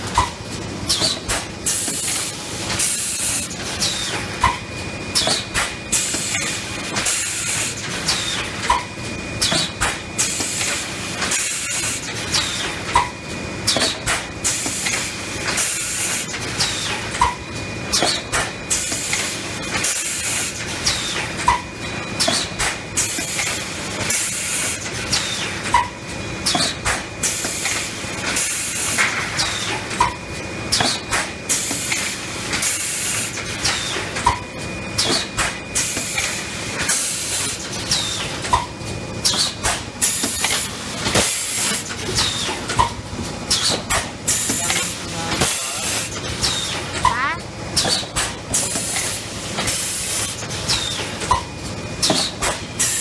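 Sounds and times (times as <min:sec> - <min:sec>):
machine clank and chirp: 0:00.2 - 0:02.0, 0:08.0 - 0:10.7, 0:37.9 - 0:40.5, 0:50.7 - 0:53.0.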